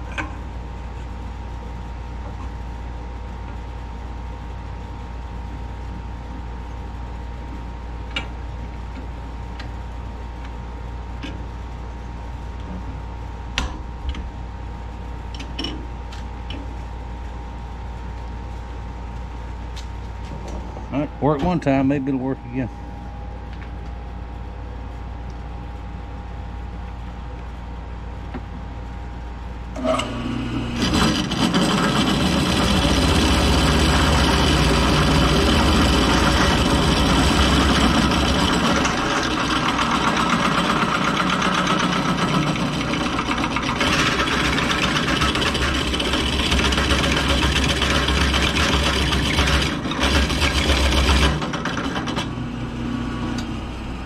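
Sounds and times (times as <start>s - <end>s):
drill press running: 29.7s - 54.0s
drill bit grinding into metal tube: 29.8s - 52.3s.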